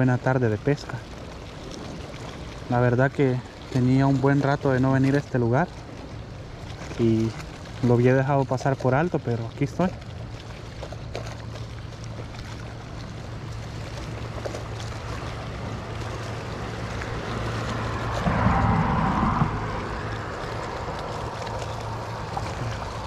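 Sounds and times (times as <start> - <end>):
water lapping against seawall: 0.0 - 23.0
steady low hum: 2.7 - 23.0
wind blowing across microphone: 15.8 - 23.0.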